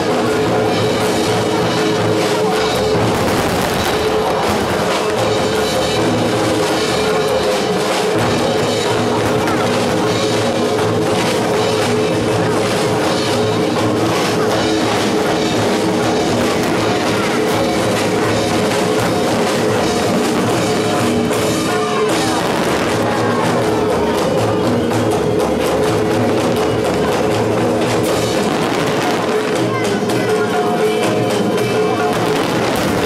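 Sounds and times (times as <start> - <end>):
heavy drum kit and bass drum: 0.0 - 33.0
live rock band playing: 0.0 - 33.0.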